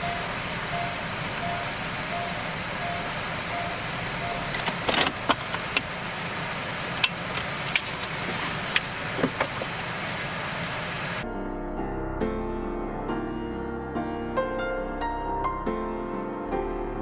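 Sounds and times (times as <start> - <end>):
short beeps: 0.0 - 4.5
car road and engine noise: 0.0 - 11.2
sharp clicks and rattles: 4.3 - 5.9.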